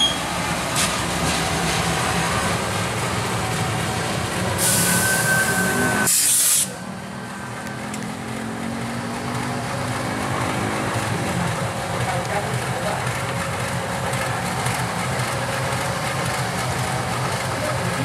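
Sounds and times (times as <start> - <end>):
diesel locomotive engine running: 0.0 - 18.0
air brakes hissing: 4.6 - 6.9.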